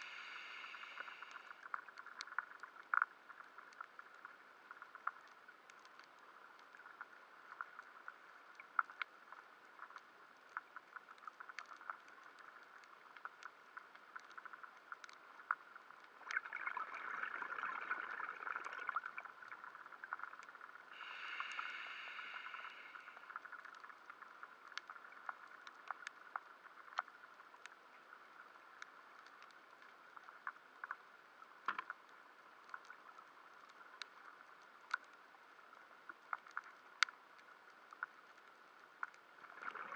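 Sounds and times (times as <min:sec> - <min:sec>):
underwater hiss: 0:00.0 - 0:01.6, 0:20.9 - 0:23.5
underwater clicks and crackles: 0:00.0 - 0:39.9.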